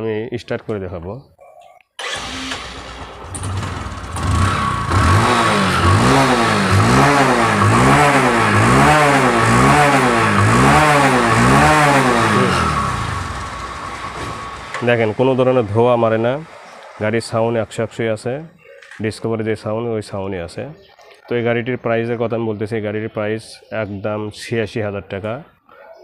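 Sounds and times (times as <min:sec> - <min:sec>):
motorcycle engine idling and revving: 0:02.0 - 0:17.6.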